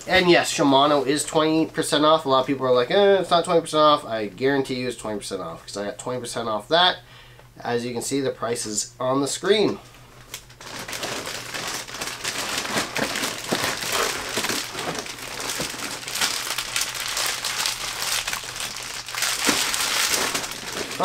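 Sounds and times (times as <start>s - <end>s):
plastic packages crinkling: 10.2s - 21.0s.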